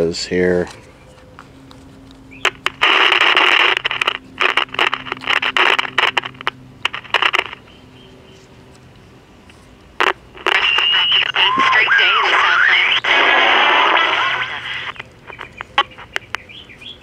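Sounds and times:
radio static hiss bursts: 0:02.4 - 0:07.6, 0:10.0 - 0:16.2.

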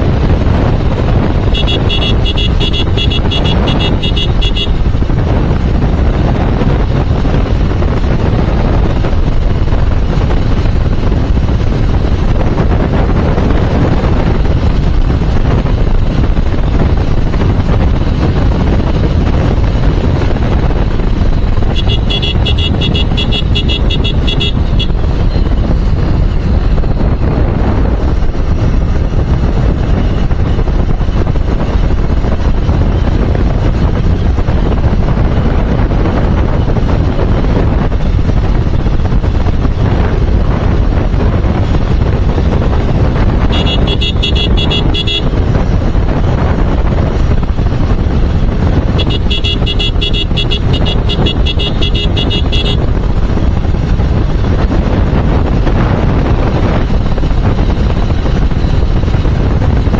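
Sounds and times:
motorcycle engine running: 0:00.0 - 0:59.9
wind rushing over microphone: 0:00.0 - 0:59.9
horn beeping: 0:01.4 - 0:04.8, 0:21.7 - 0:25.5, 0:43.5 - 0:45.4, 0:48.9 - 0:52.8.

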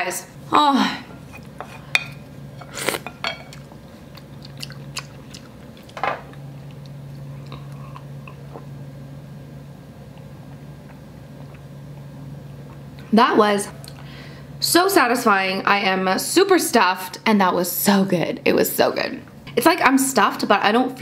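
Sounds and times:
person slurping broth: 0:02.6 - 0:03.1
soft chewing and mouth noises: 0:02.7 - 0:08.8, 0:10.1 - 0:13.0.

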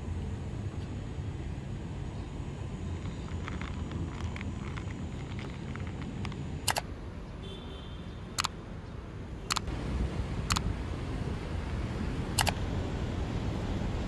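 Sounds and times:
city traffic rumble: 0:00.0 - 0:14.0
camera shutter clicks: 0:12.4 - 0:12.6.

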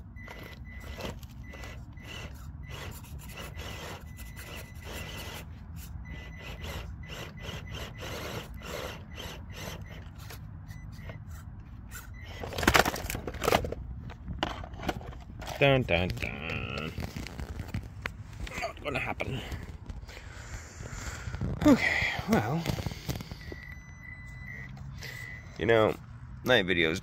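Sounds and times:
toy car motor whine: 0:00.0 - 0:12.8, 0:22.6 - 0:25.6.

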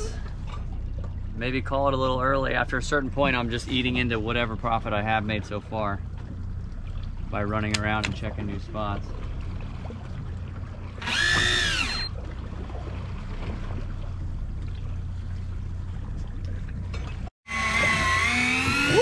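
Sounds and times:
outboard engines idling: 0:00.0 - 0:17.3
electric reel motor whine: 0:11.0 - 0:12.1, 0:17.5 - 0:19.0.

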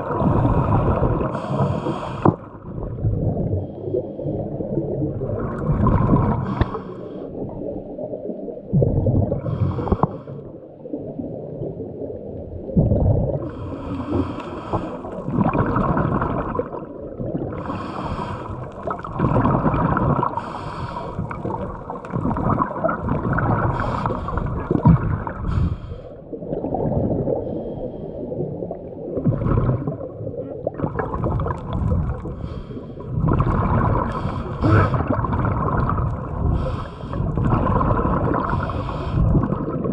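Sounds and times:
diver breathing underwater: 0:00.0 - 0:02.6, 0:03.3 - 0:04.6, 0:05.5 - 0:07.6, 0:09.2 - 0:10.6, 0:13.3 - 0:16.8, 0:17.4 - 0:28.6, 0:31.0 - 0:39.8
gurgling exhaled bubbles: 0:00.0 - 0:39.9.

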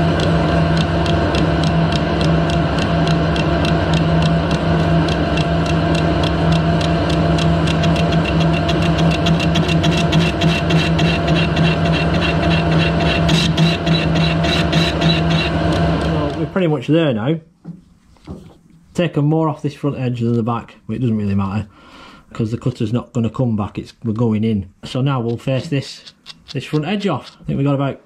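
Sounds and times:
cutter ticking on casting: 0:00.0 - 0:16.6, 0:25.2 - 0:27.5
lathe motor humming: 0:00.0 - 0:16.7.

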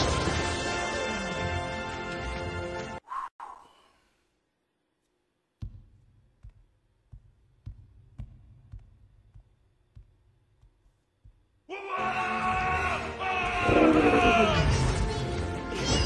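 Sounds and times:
heavy footsteps: 0:05.6 - 0:11.7.

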